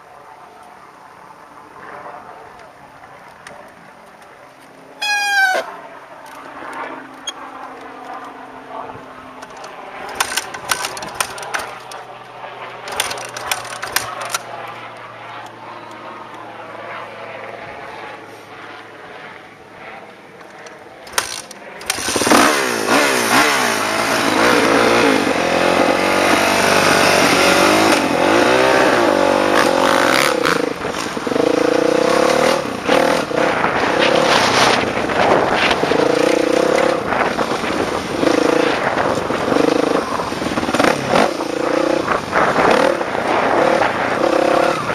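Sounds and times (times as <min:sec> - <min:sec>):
dirt bike engine revving: 0:09.4 - 0:12.0, 0:12.8 - 0:14.4, 0:21.0 - 0:44.9
sharp clicks: 0:09.4 - 0:12.0, 0:12.8 - 0:15.5, 0:20.4 - 0:22.7.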